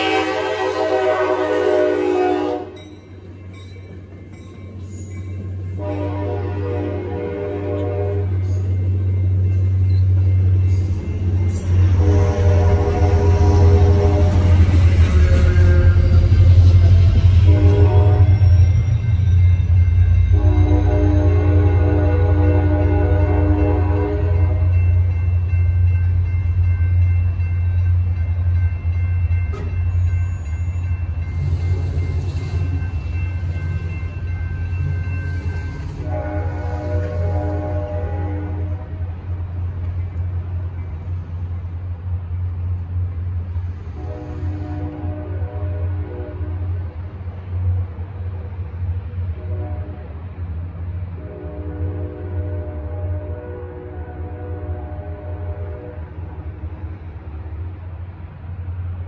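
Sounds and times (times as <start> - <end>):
train horn chord: 0.0 - 2.8, 5.8 - 8.7, 11.8 - 18.8, 20.0 - 25.2, 34.8 - 39.1, 43.8 - 46.9, 49.4 - 50.2, 51.1 - 56.5
crossing warning bell ringing: 0.0 - 39.0
diesel locomotive passing: 0.0 - 59.0
train cars rumbling past: 0.0 - 59.0.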